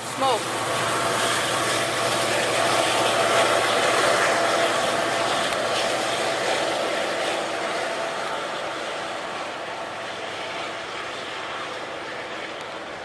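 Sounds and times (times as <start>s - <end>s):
diesel locomotive engine drone: 0.0s - 13.0s.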